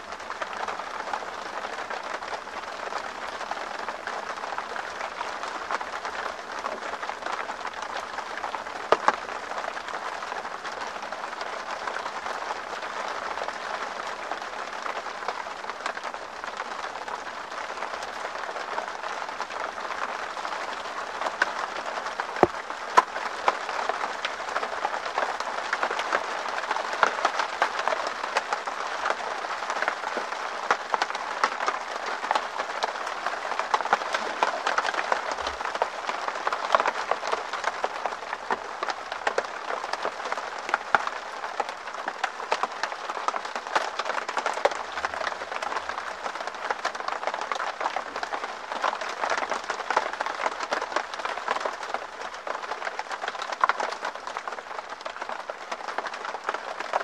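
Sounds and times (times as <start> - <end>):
rain on tent fabric: 0.0 - 57.0
raindrop hits: 22.4 - 23.2.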